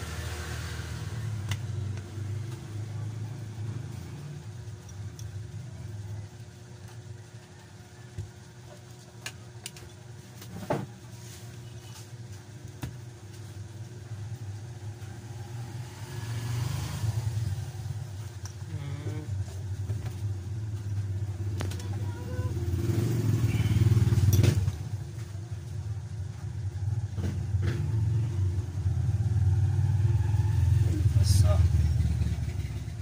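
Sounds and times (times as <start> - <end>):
traffic engine rumble: 11.0 - 33.0.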